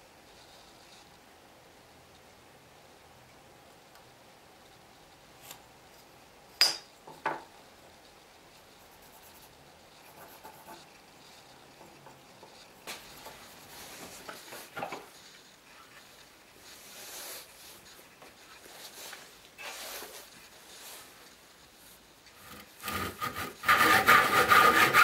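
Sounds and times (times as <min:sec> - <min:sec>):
pencil rubbing on wood: 0:08.8 - 0:11.6, 0:22.5 - 0:25.0.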